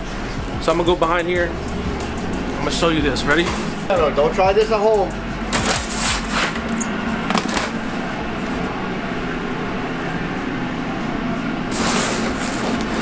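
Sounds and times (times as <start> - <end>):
exhaust hood and oven humming: 0.0 - 13.0
pizza peel scraping oven deck: 5.5 - 7.9, 11.7 - 13.0.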